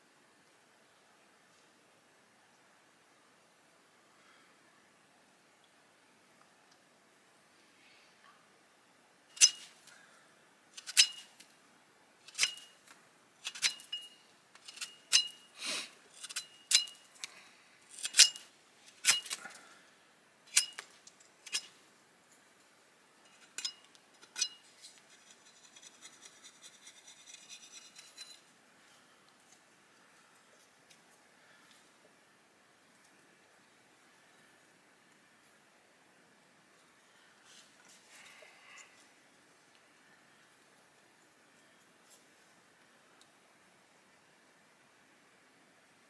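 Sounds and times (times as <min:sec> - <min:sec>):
stone striking stone: 0:13.4 - 0:15.5
stone rasping scrape: 0:13.4 - 0:17.0, 0:24.3 - 0:28.4.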